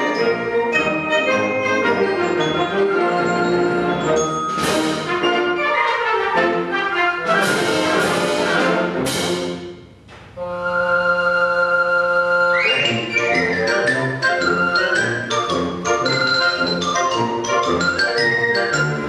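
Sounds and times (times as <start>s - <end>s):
concert band playing: 7.2s - 9.9s.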